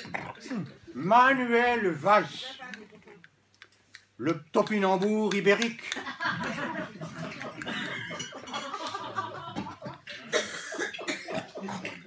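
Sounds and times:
guests chuckling and murmuring: 0:05.8 - 0:12.0.

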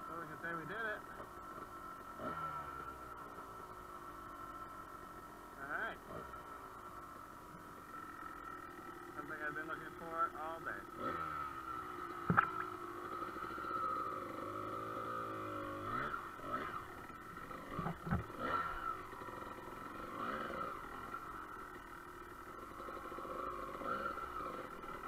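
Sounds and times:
dirt bike engine at low revs: 0:00.0 - 0:25.0
sharp knocks: 0:12.3 - 0:12.7.

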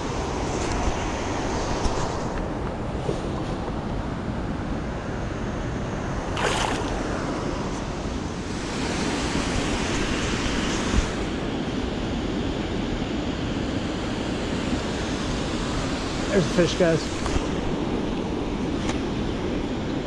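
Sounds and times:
river water pouring over a dam: 0:06.3 - 0:07.1.

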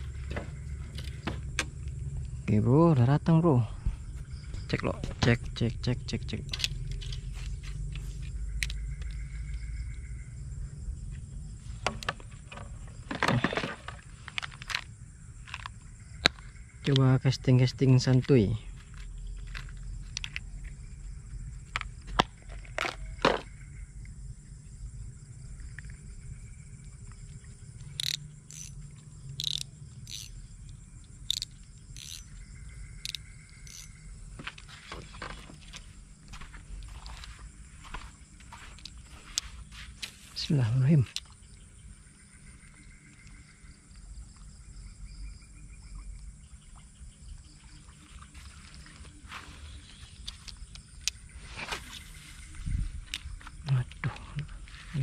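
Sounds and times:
scooter engine rumbling: 0:00.0 - 0:16.6
high insect drone: 0:00.0 - 0:55.0
rattle of handling: 0:11.9 - 0:16.4, 0:29.4 - 0:30.3, 0:31.3 - 0:32.4
sharp clicks: 0:27.8 - 0:28.8, 0:29.4 - 0:32.3.

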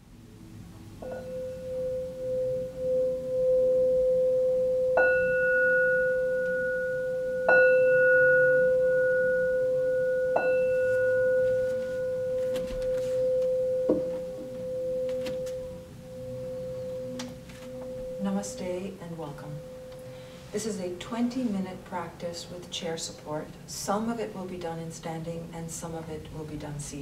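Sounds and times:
singing bowl struck with mallet: 0:01.0 - 0:12.5, 0:13.2 - 0:18.9.

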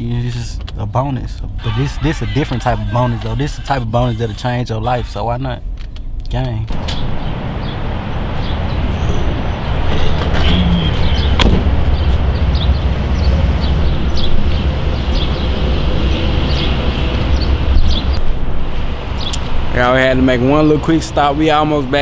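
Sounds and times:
car road and engine rumble: 0:00.0 - 0:22.0
sharp knock: 0:11.4 - 0:11.8.

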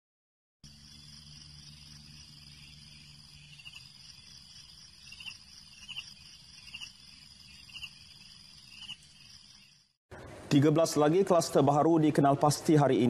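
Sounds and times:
insect chirring: 0:00.6 - 0:10.0.

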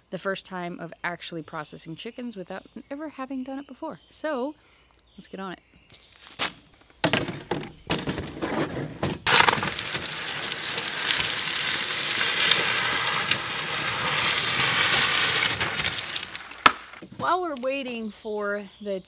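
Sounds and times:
plastic containers clattering: 0:07.0 - 0:12.6.

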